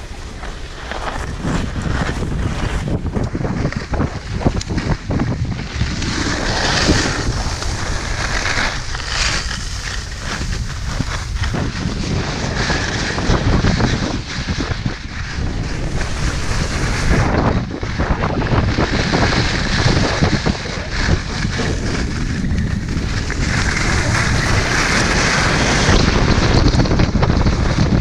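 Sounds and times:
skis carving snow: 0:00.0 - 0:28.0
wind buffeting microphone: 0:00.0 - 0:28.0.

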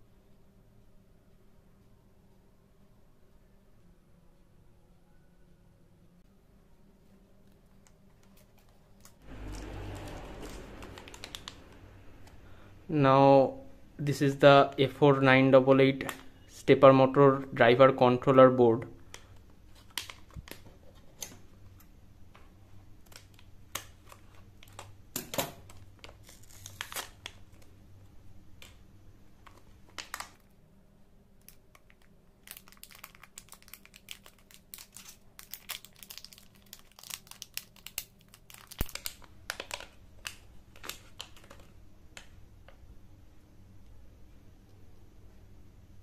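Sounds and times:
foil bag crinkling: 0:25.8 - 0:27.7, 0:31.4 - 0:41.7.

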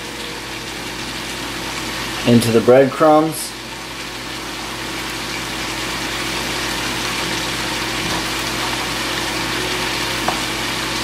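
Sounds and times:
chicken sizzling in a pan: 0:00.0 - 0:11.0.

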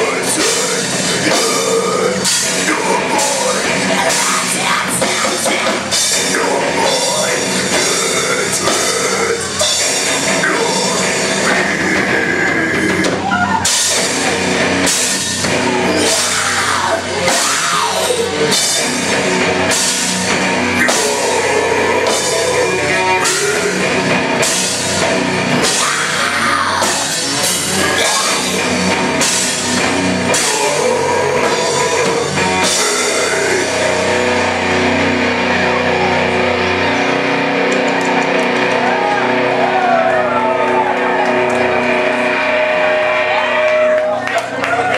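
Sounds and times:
rock band playing: 0:00.0 - 0:44.9.

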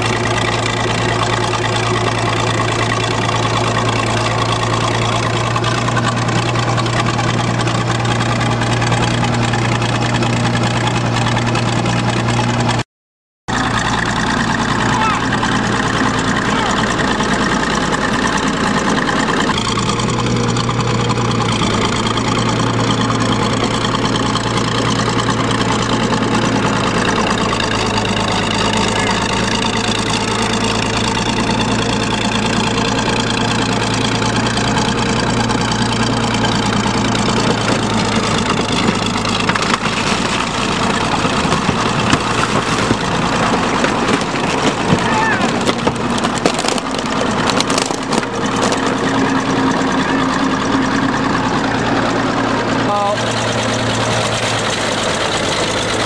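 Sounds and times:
bulldozer diesel engine running: 0:00.0 - 0:12.8, 0:13.5 - 0:56.0
car body cracking and crunching: 0:36.6 - 0:49.3.

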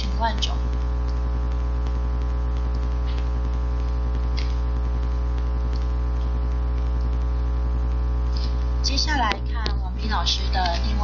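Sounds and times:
electrical mains hum: 0:00.0 - 0:11.0
faint clicks: 0:00.7 - 0:07.3.

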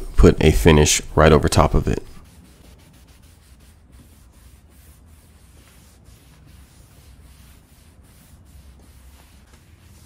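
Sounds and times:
rag rubbing on wood: 0:02.2 - 0:10.0.

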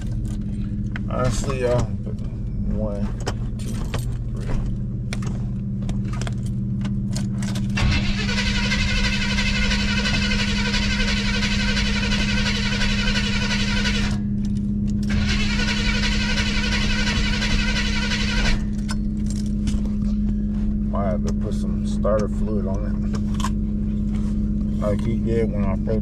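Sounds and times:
starter motor cranking car engine: 0:05.1 - 0:19.4.

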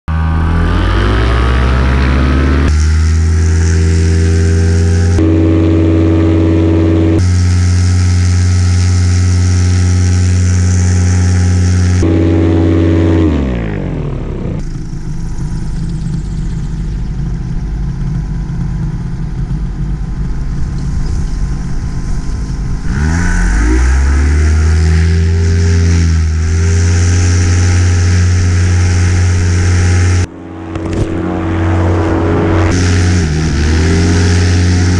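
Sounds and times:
paramotor engine and propeller: 0:00.1 - 0:34.9.

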